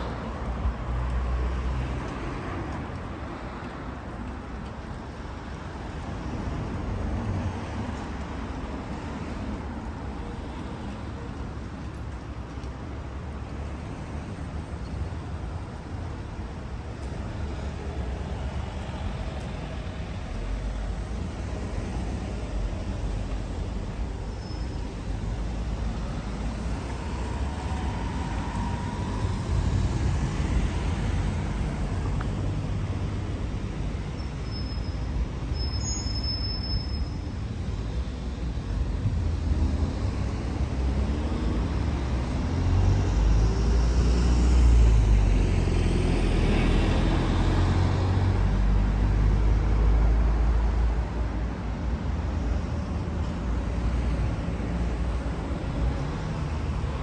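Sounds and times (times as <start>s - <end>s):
cars passing by: 0.0s - 57.0s
road traffic hum: 0.0s - 57.0s
faint high whistle: 34.4s - 37.2s.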